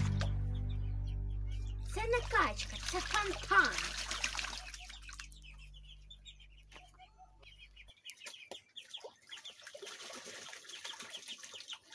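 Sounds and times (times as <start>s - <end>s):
low hum: 0.0s - 7.9s
high bird chirps: 0.0s - 9.7s
chickens clucking: 0.0s - 10.0s.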